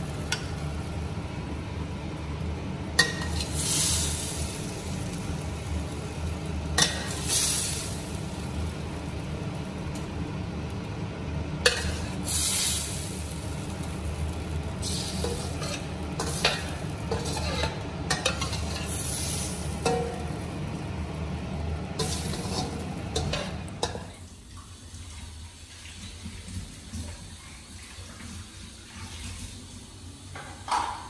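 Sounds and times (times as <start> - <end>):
hot pan sizzling: 0.0 - 24.5
metal spatula scraping a wok: 3.0 - 4.3, 11.7 - 12.8, 14.8 - 20.2, 22.0 - 23.9.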